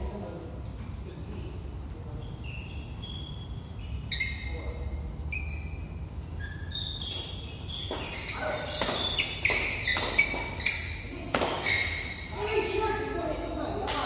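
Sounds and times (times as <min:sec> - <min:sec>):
shoes squeaking on court floor: 0:02.2 - 0:13.1
rackets hitting shuttlecock: 0:07.7 - 0:12.1.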